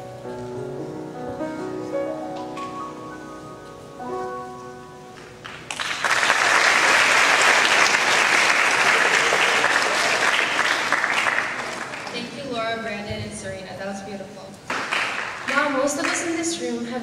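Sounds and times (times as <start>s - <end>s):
piano chord: 0.0s - 6.2s
audience clapping: 5.2s - 12.3s, 14.7s - 16.4s.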